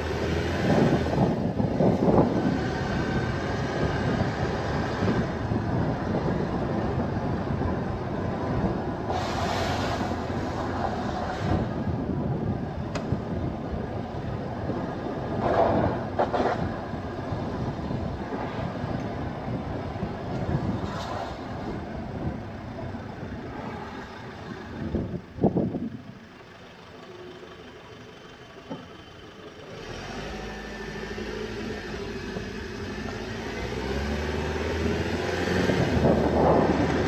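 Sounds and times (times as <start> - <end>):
rushes of noise: 0.0 - 13.3
road and tyre noise: 0.0 - 37.0.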